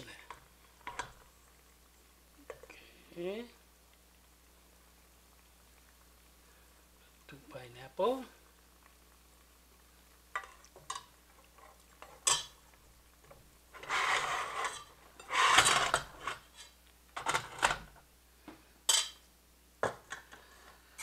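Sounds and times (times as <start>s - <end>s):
ladle clinking on metal pot: 12.2s - 12.6s
spatula scraping metal pot: 13.8s - 17.6s.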